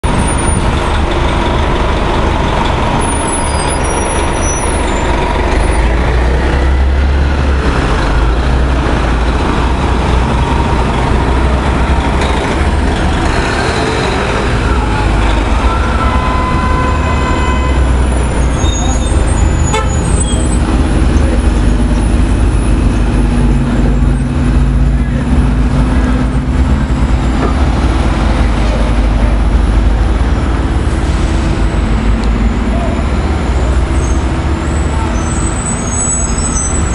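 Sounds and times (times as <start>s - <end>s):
bus engines rumbling: 0.0s - 36.9s.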